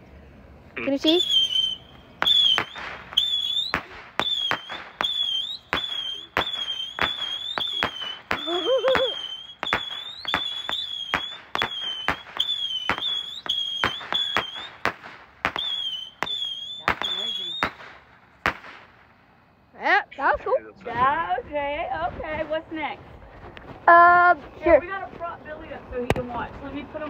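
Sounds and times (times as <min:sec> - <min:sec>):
firework whistle: 0:01.0 - 0:18.9
firework pops: 0:01.2 - 0:19.1, 0:25.9 - 0:26.6.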